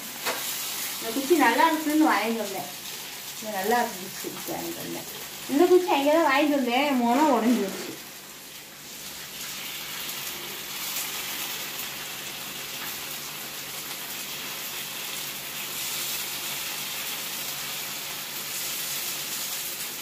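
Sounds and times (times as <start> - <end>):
batter sizzling in oil: 0.0 - 20.0.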